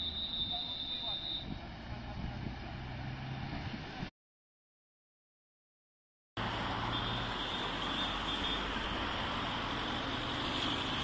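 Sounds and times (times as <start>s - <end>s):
road traffic: 0.0s - 4.1s, 6.4s - 11.0s.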